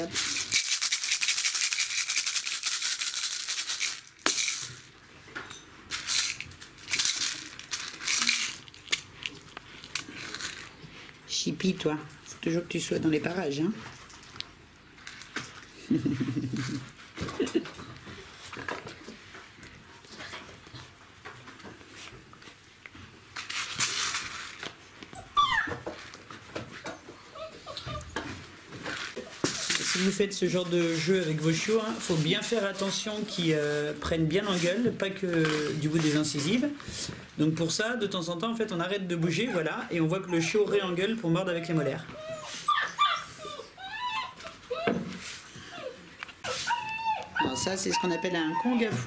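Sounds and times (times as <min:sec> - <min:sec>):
small hard toys rattling: 0:00.0 - 0:05.0, 0:05.9 - 0:10.8, 0:23.4 - 0:24.8
puppy yelp: 0:25.1 - 0:25.9, 0:27.3 - 0:28.4, 0:39.3 - 0:40.7, 0:41.6 - 0:49.0.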